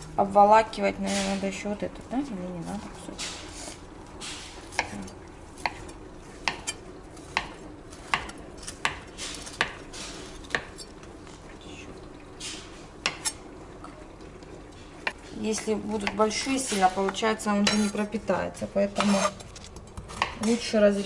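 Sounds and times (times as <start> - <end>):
soft knife scraping: 19.0 - 19.5.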